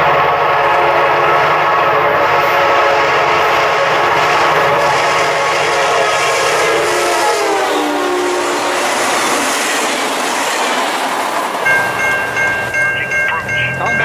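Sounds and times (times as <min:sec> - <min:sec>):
train horn: 0:00.0 - 0:09.8
passing train wheel clatter: 0:00.0 - 0:14.0
crossing warning bell ringing: 0:11.5 - 0:14.0.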